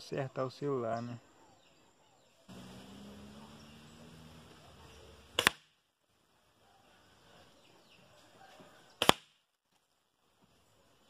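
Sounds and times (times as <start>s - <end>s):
air rifle pellet cracks: 5.4s - 5.7s, 9.0s - 9.4s.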